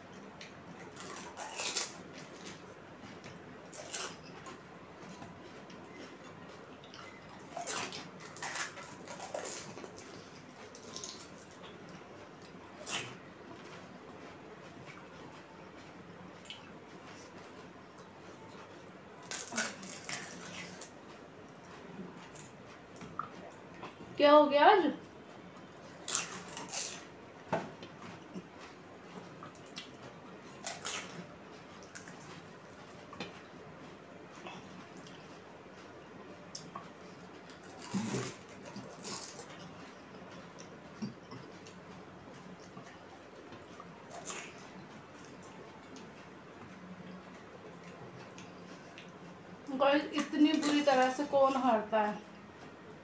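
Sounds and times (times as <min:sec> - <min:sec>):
crunching and slurping food: 0:37.5 - 0:39.8.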